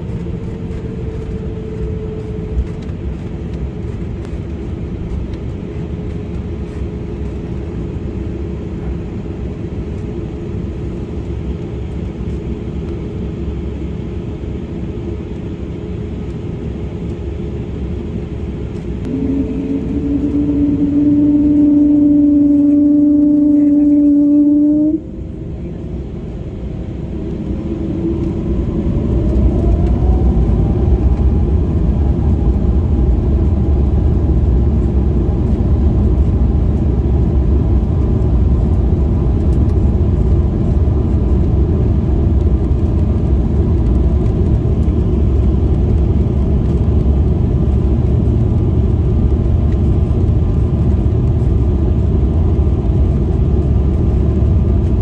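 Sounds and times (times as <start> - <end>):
rumble of engines and undercarriage: 0.0 - 55.0
jet engines spooling up: 18.7 - 45.7.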